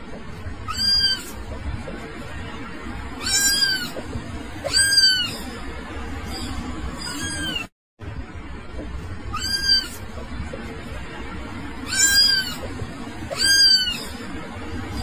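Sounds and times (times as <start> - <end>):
cat meowing: 0.7 - 1.4, 3.2 - 4.0, 4.6 - 5.5, 6.3 - 7.7, 9.3 - 10.0, 11.8 - 12.7, 13.3 - 14.2.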